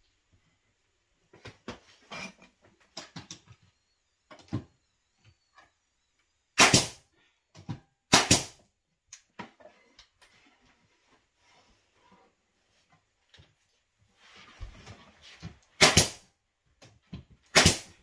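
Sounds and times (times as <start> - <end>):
nail gun firing: 6.6 - 7.0, 8.1 - 8.6, 15.8 - 16.2, 17.5 - 18.0.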